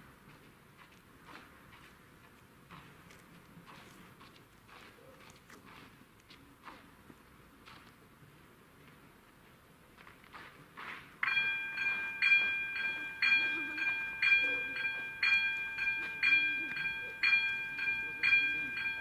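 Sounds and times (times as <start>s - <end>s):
level crossing warning bell: 11.2s - 19.0s.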